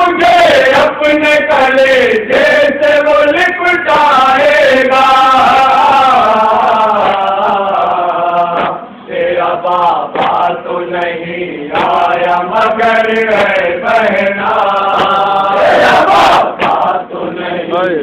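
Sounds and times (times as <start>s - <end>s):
man chanting into a microphone: 0.0s - 8.8s
sharp chest slaps: 8.5s - 8.8s, 10.1s - 10.5s, 11.7s - 12.1s, 14.9s - 15.2s, 16.3s - 16.9s.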